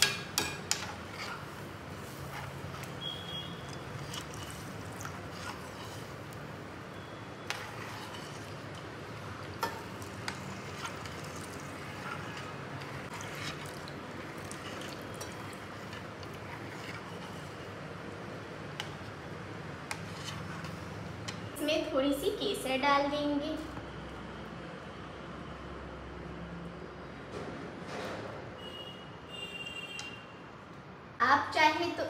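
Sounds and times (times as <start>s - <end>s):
milk pouring and splashing: 3.0s - 6.1s, 7.6s - 17.3s.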